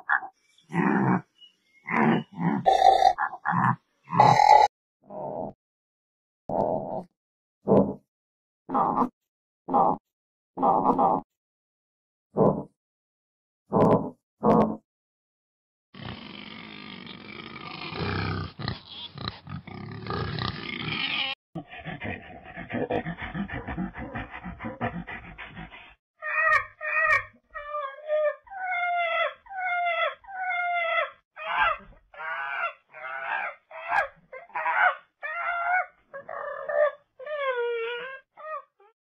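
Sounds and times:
pig grunting: 0.0 - 1.3, 1.9 - 4.7, 16.0 - 26.0.

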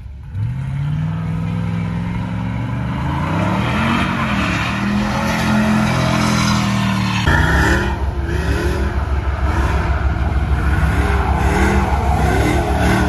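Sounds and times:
truck engine revving: 0.0 - 13.0
tyres squealing on asphalt: 3.0 - 13.0.

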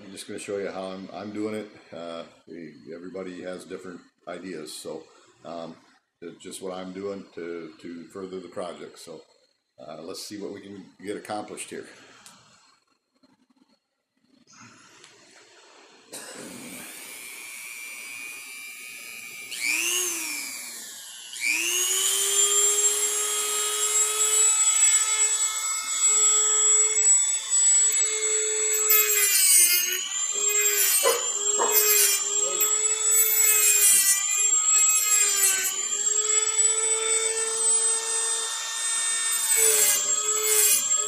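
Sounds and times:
rotary tool high whine: 11.7 - 41.0
cutoff wheel grinding: 16.7 - 41.0.

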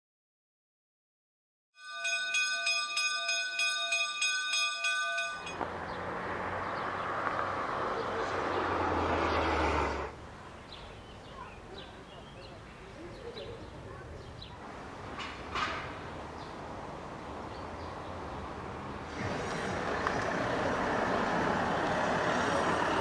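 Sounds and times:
church bells ringing: 1.8 - 5.6
outdoor noise with low rumble: 18.0 - 23.0.

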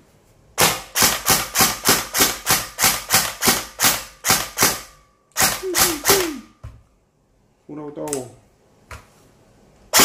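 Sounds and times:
airsoft gun single shots: 0.6 - 6.4.

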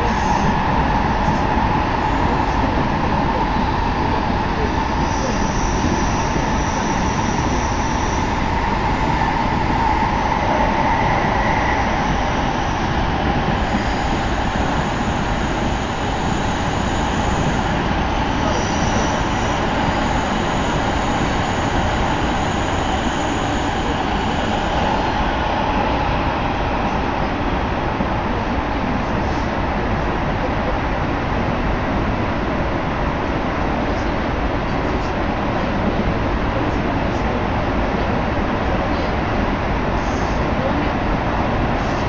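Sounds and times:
train wheels rumbling: 0.0 - 31.1
train whine: 0.0 - 42.0.

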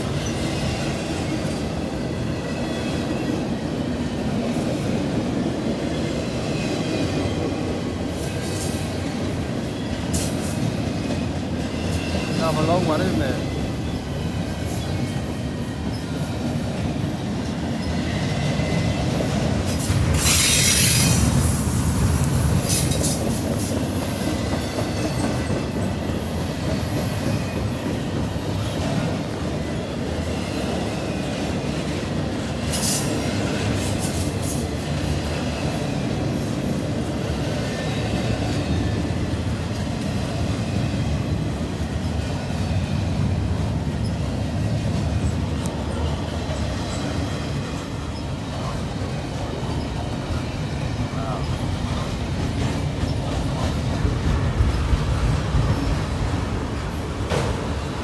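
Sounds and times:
freight train wheels rumbling on rail: 0.0 - 58.0
high wheel squeals: 19.7 - 21.4.

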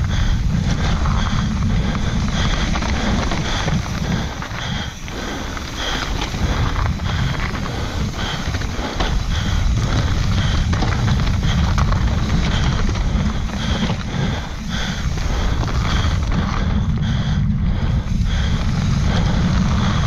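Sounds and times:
bike knocking and rattling: 0.0 - 20.0
tyres rumbling on dirt: 0.0 - 20.0
wind buffeting microphone: 0.0 - 20.0.

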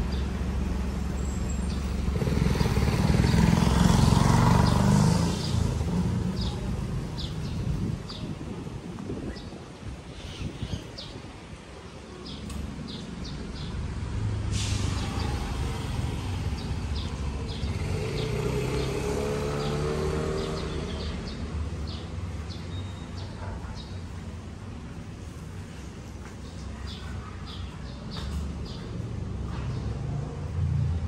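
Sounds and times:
vehicle engine rumble passing: 0.0 - 8.5, 13.5 - 22.9
small birds chirping: 1.1 - 8.4, 14.9 - 24.3, 25.2 - 30.0.

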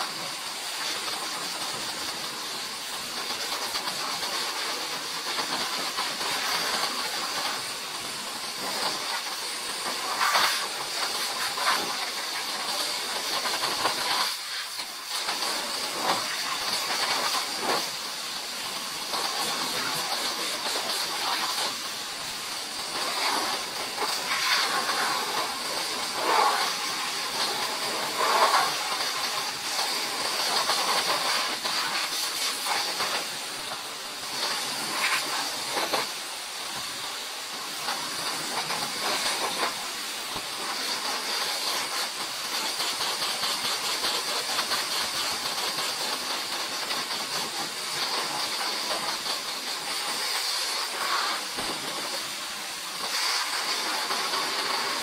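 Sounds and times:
pressure washer spraying water: 0.0 - 55.0.

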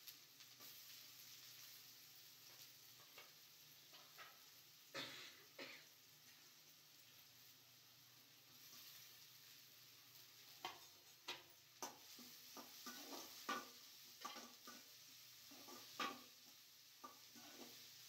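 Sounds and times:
faint frying sizzle: 0.0 - 18.0
utensil scraping a cooking pan: 0.4 - 4.6, 8.5 - 18.0.

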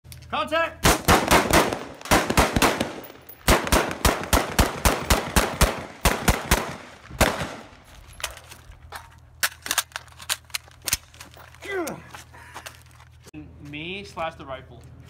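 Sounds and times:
faint scattered gunshots: 0.8 - 7.8
rifle firing rapid shots: 0.8 - 7.8.

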